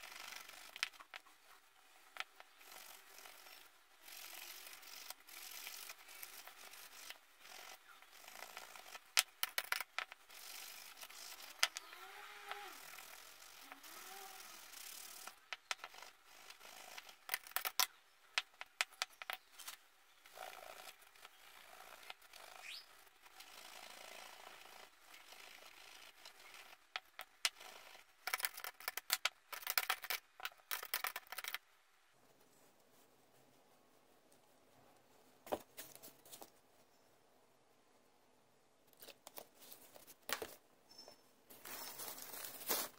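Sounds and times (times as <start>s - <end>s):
metal pieces clicking: 28.2s - 31.6s.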